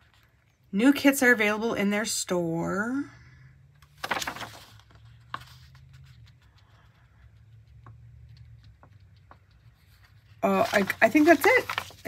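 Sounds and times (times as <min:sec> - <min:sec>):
paper rustling: 0:03.8 - 0:12.0.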